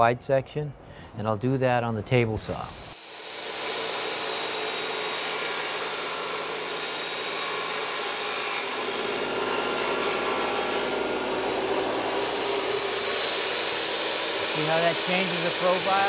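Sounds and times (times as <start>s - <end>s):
table saw cutting wood: 2.9s - 16.0s.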